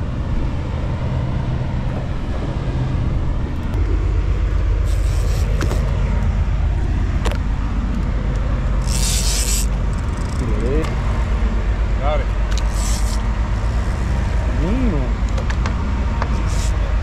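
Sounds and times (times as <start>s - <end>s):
outboard engines humming: 0.0s - 17.0s
wind: 0.0s - 17.0s
water noise: 1.9s - 11.8s.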